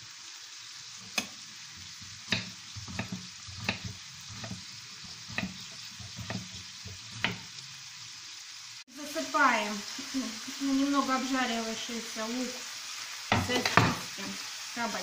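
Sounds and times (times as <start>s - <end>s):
food sizzling in a pan: 0.0s - 15.0s
knife cutting on wooden board: 1.0s - 7.5s.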